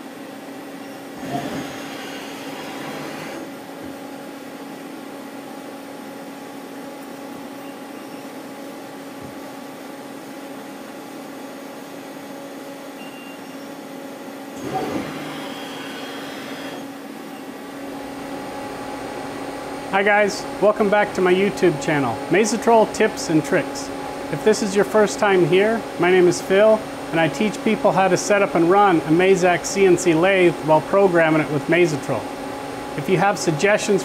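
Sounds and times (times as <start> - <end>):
lathe machine hum: 1.0 - 3.8, 14.6 - 19.9
loud noisy machining: 1.1 - 3.6, 14.6 - 17.0.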